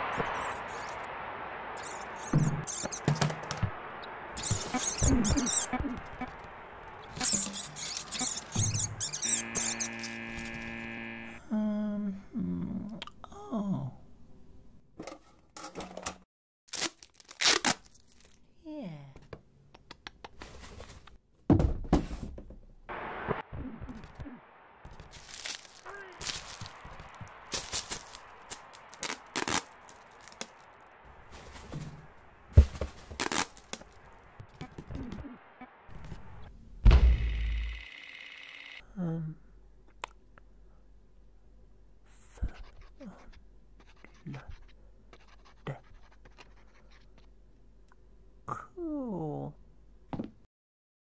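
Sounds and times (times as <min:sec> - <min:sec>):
plastic sheeting crinkling: 0:24.9 - 0:30.6, 0:31.2 - 0:34.0
low thump: 0:36.8 - 0:37.6.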